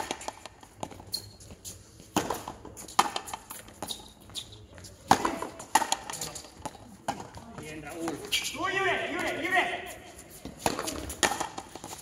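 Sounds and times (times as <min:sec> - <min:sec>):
racket striking ball: 0:00.0 - 0:01.0, 0:02.1 - 0:03.5, 0:05.1 - 0:07.4, 0:10.5 - 0:12.0.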